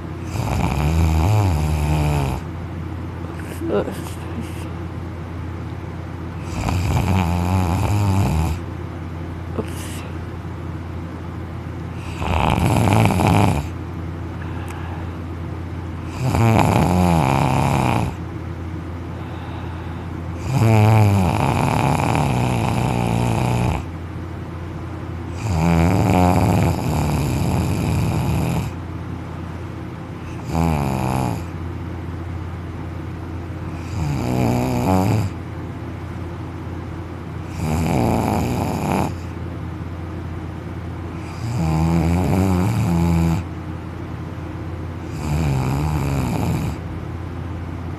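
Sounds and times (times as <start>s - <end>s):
steady low hum: 0.0s - 47.9s
man snoring loudly: 0.2s - 2.5s, 6.4s - 8.6s, 12.0s - 13.8s, 16.1s - 18.2s, 20.4s - 23.9s, 25.3s - 28.8s, 30.3s - 31.5s, 33.8s - 35.4s, 37.5s - 39.3s, 41.2s - 43.5s, 45.1s - 46.8s.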